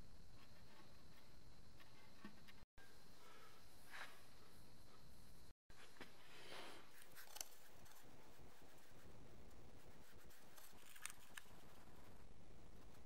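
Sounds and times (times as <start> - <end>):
low steady background rumble: 6.8 - 13.0.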